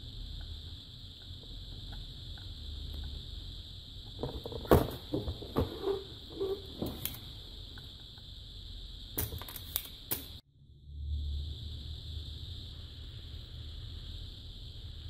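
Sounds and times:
high hiss: 0:00.0 - 0:15.0
low hum: 0:10.4 - 0:15.0.

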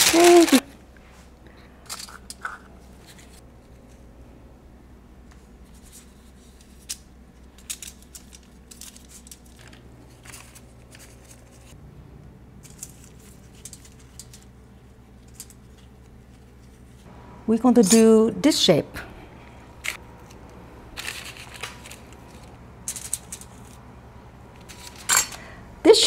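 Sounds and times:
foil crinkling and tray clicks: 0:00.0 - 0:00.7, 0:06.8 - 0:11.7, 0:21.0 - 0:23.8
faint steady hum: 0:00.0 - 0:26.0.

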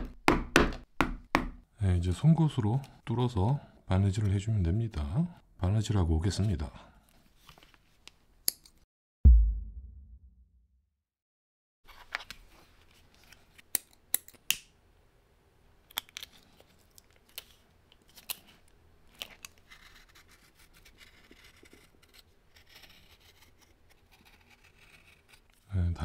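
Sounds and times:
knife scraping leather edge: 0:19.7 - 0:25.6.

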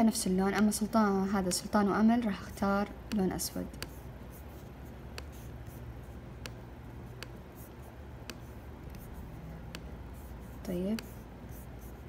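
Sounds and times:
faint low hum: 0:00.0 - 0:12.0
computer mouse clicks: 0:06.4 - 0:09.9.

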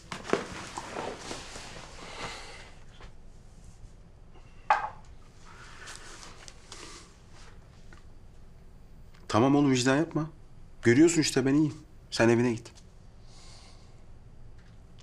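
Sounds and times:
soft rustling: 0:00.0 - 0:04.0
glass set down on table: 0:04.7 - 0:05.0.

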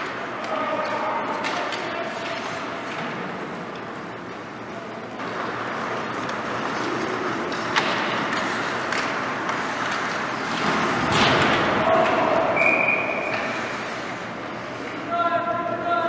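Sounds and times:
hockey stick clacking puck: 0:00.0 - 0:03.9, 0:05.4 - 0:12.4
skates scraping ice: 0:00.0 - 0:15.0
short high whistle: 0:12.6 - 0:13.5.

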